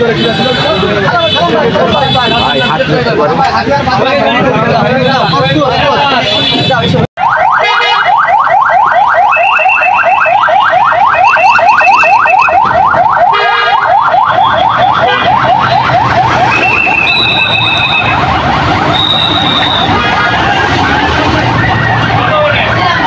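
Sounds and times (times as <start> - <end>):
police siren yelping: 7.2 - 23.0
steady high siren tones: 7.2 - 23.0.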